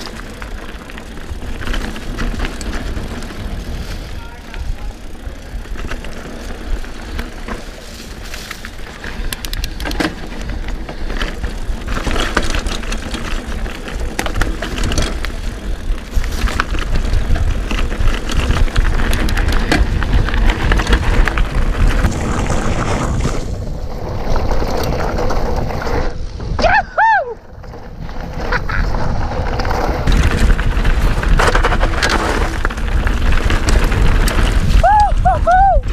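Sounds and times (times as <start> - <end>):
bike rattling and knocking: 0.0 - 35.9
bike tyres crunching over leaves: 0.0 - 35.9
wind on microphone: 14.4 - 35.9.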